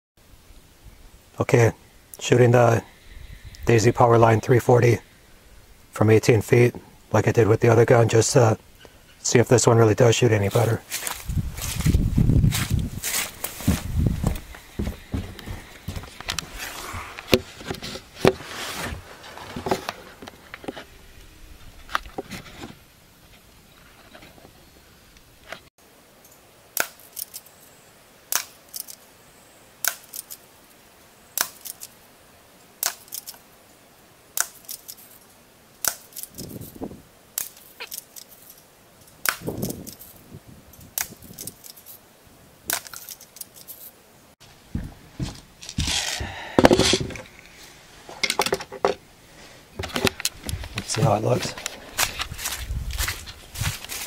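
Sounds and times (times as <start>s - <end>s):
handling rustling and knocks: 10.5s - 20.9s, 42.7s - 49.0s, 49.8s - 54.0s.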